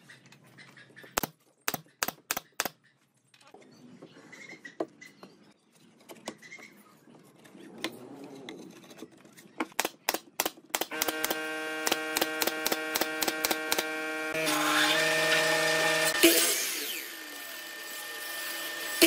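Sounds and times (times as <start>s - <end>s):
nail gun firing sharp shots: 9.8s - 14.0s.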